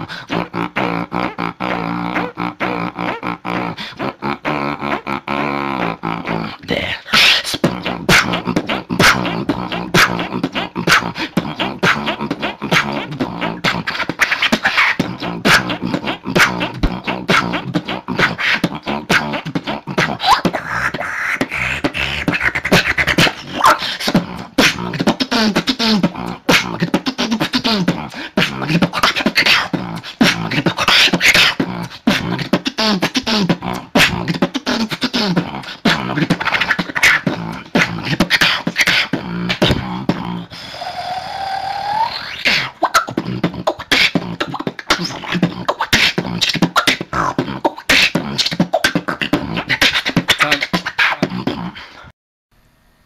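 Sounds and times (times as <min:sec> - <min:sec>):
beatboxing: 0:00.0 - 0:52.1
rising pitched vocal note: 0:14.9 - 0:38.0, 0:39.1 - 0:44.4.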